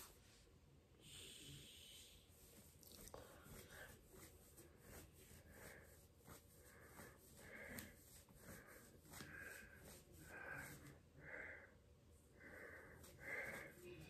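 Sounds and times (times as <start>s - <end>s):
person breathing wheezily: 4.9s - 14.0s.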